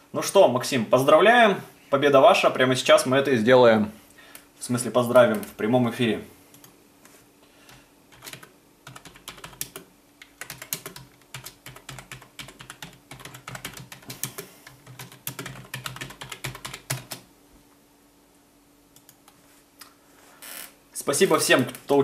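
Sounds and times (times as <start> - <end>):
keyboard typing: 8.1 - 17.3.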